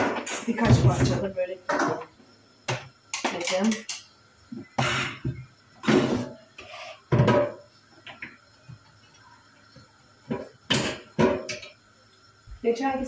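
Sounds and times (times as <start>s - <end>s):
dishes clattering: 7.1s - 8.2s, 10.3s - 11.7s.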